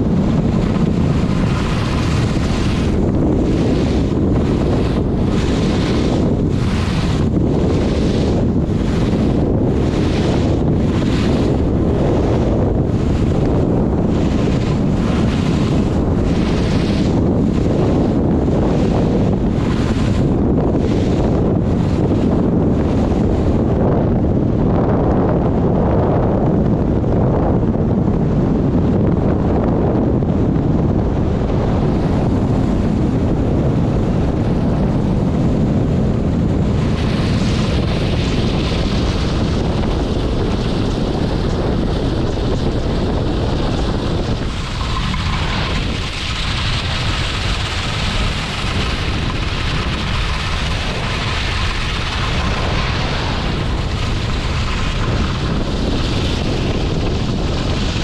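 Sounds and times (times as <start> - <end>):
wind buffeting microphone: 0.0 - 58.0
skis hissing over snow: 1.3 - 12.2, 36.8 - 58.0.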